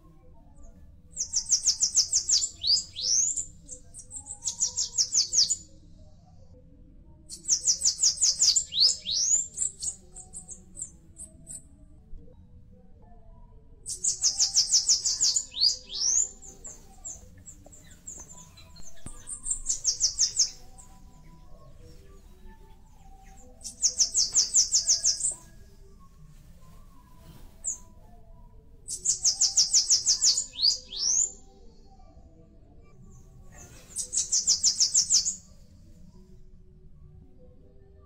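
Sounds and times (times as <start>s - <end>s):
bird singing high thin notes: 14.0s - 17.2s, 17.8s - 25.6s.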